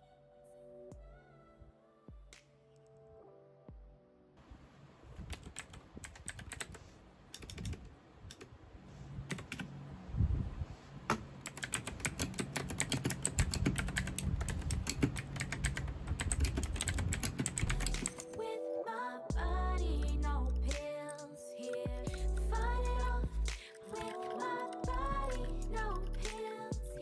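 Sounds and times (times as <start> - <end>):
mechanical keyboard typing: 5.2 - 6.8, 7.4 - 8.5, 9.3 - 9.7, 11.1 - 18.4, 23.7 - 26.9.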